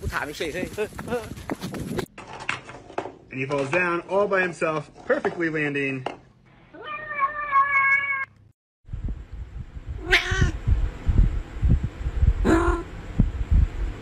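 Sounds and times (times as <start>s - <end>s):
cat meowing: 6.8s - 8.4s, 10.0s - 10.6s.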